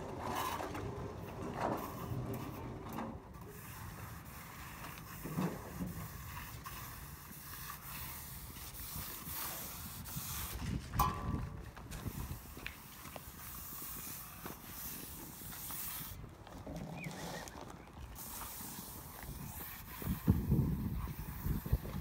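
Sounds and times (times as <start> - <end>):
wind buffeting microphone: 8.2 - 22.0.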